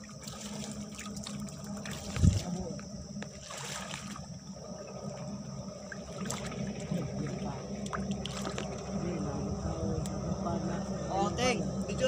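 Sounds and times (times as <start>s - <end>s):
water sloshing and splashing: 0.0s - 9.2s
low steady rumble: 0.0s - 12.0s.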